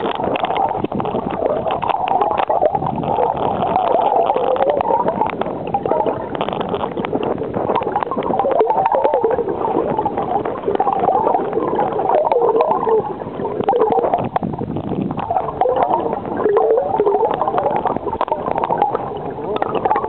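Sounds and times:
small clicks and knocks: 0.0s - 9.3s
muffled underwater river rushing: 0.0s - 20.0s.

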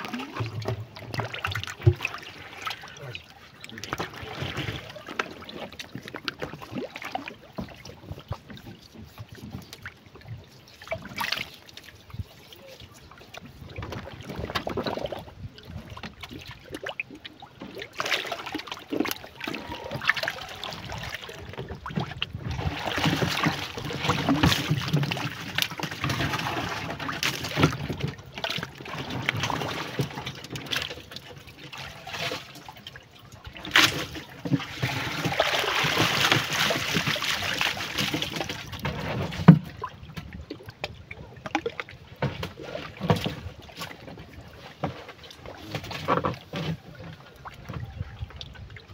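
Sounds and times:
water sloshing and trickling: 0.0s - 48.9s
water pouring out of bucket: 33.7s - 39.5s.

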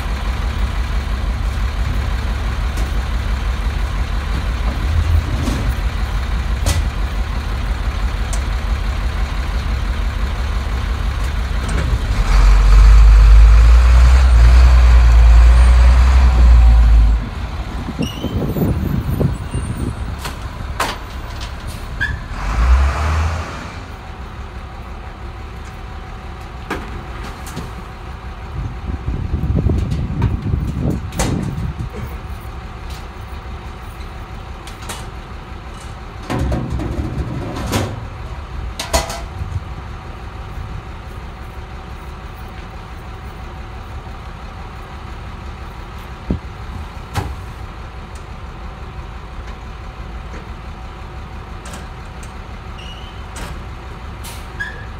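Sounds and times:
garbage truck engine rumble: 0.0s - 54.9s
sharp clanks and knocks: 6.6s - 7.0s, 29.7s - 32.2s, 35.8s - 38.1s, 38.7s - 39.4s.

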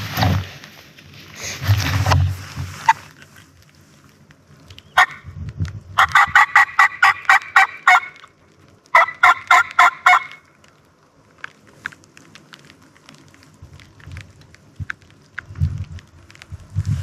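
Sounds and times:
turkey yelping: 6.0s - 8.2s, 8.9s - 10.4s.

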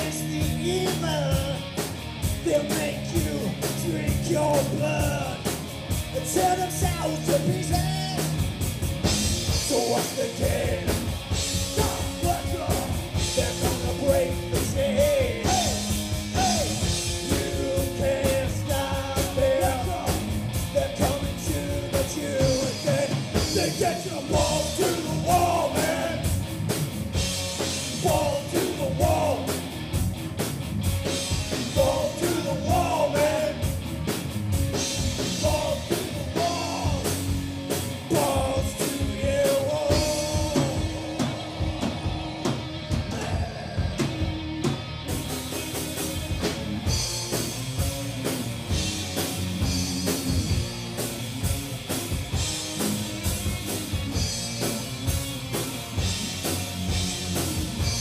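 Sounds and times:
man singing: 0.0s - 1.7s, 2.4s - 5.5s, 6.2s - 8.3s, 9.5s - 26.3s, 27.9s - 29.6s, 31.6s - 33.7s, 35.2s - 37.2s, 38.0s - 41.3s, 43.1s - 44.1s
bass guitar: 0.0s - 58.0s
distorted electric guitars: 0.0s - 58.0s
drum kit beat: 0.0s - 58.0s.

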